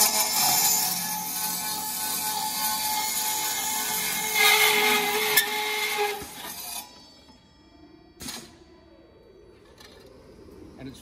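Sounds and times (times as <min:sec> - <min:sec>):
circular saw cutting steel: 0:00.0 - 0:08.5.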